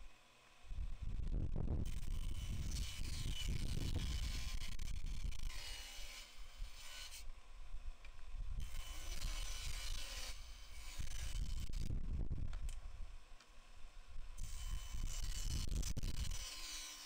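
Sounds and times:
table saw cutting wood: 0:01.8 - 0:07.3, 0:08.6 - 0:11.8, 0:14.4 - 0:17.0.

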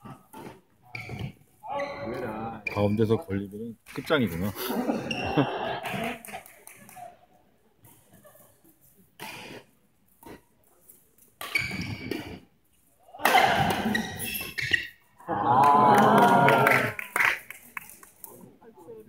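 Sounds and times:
voices shouting and cheering: 0:13.1 - 0:14.0, 0:15.2 - 0:17.1.

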